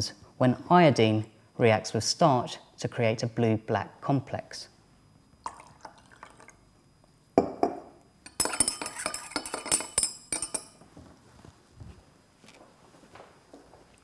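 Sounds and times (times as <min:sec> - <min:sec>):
liquid pouring into beaker: 0:05.4 - 0:06.6
glass rod clinking in beaker: 0:07.4 - 0:10.8.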